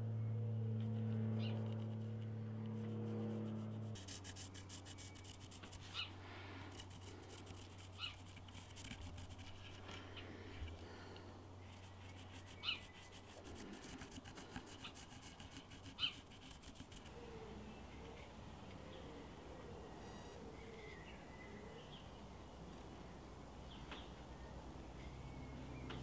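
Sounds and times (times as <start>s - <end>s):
pencil scratching on wood: 0.8s - 9.9s, 11.7s - 17.2s
bird chirping: 1.4s - 1.7s, 4.8s - 6.2s, 7.8s - 8.2s, 11.6s - 13.4s, 15.9s - 16.2s, 17.1s - 22.4s.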